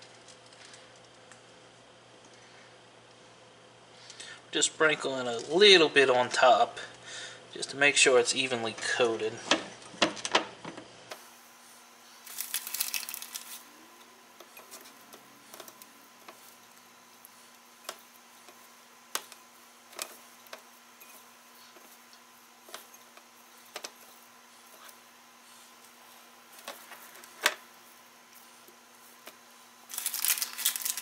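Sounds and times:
fish squishing in dry rub: 12.2 - 13.7.

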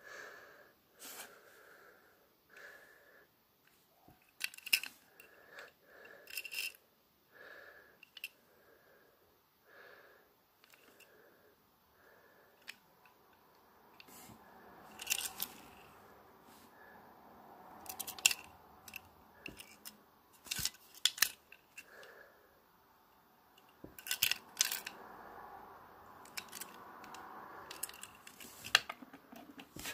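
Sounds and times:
toy car clicks and taps: 17.8 - 21.9, 23.6 - 25.0, 26.2 - 29.9.

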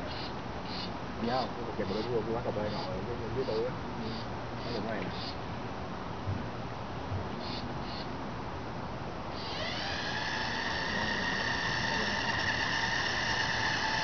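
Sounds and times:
electric drive motors whining: 9.4 - 14.0.

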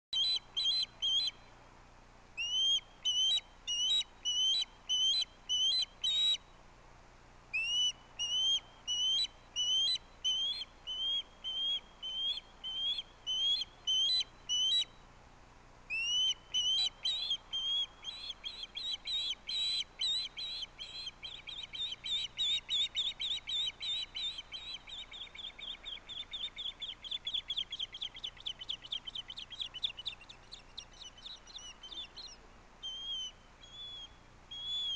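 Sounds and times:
osprey whistled chirps: 2.4 - 6.4, 7.6 - 15.0, 15.9 - 34.9.

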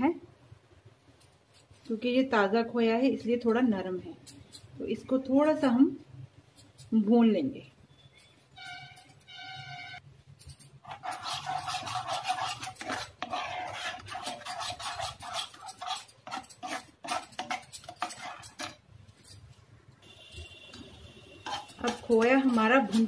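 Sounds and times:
spoon scraping a frying pan: 10.7 - 18.9, 21.4 - 23.0.

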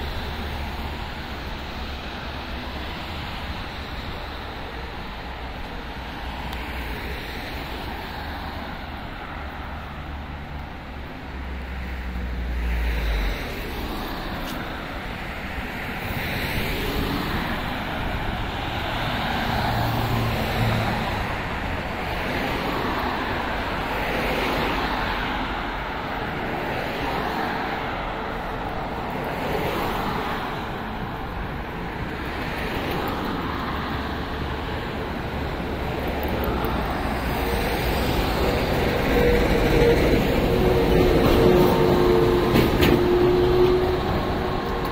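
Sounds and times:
cars passing: 0.0 - 44.9
road traffic noise: 0.0 - 44.9.

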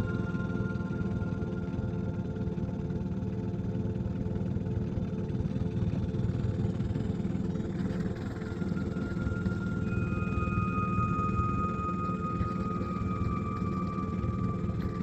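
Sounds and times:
low drone: 0.0 - 3.6, 7.8 - 15.0.

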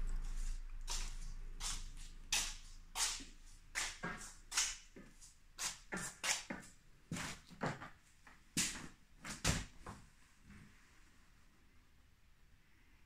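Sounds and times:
footsteps on hard floor: 0.2 - 10.0.

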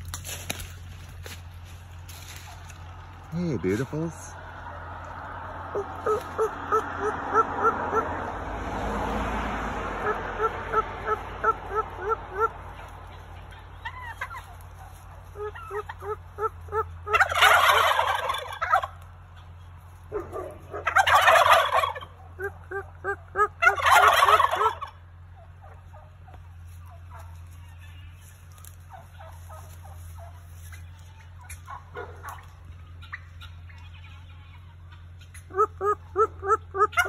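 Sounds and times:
turkey gobbling: 0.0 - 8.6, 9.6 - 37.0
short repeated turkey calls: 5.7 - 8.2, 10.0 - 37.0.

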